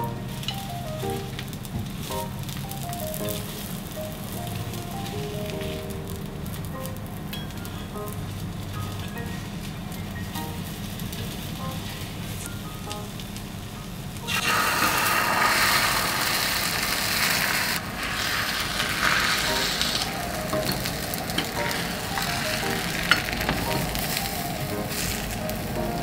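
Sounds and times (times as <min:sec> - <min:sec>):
egg sizzling in frying pan: 0:00.0 - 0:26.0
chopsticks clicking on pan: 0:19.8 - 0:25.0.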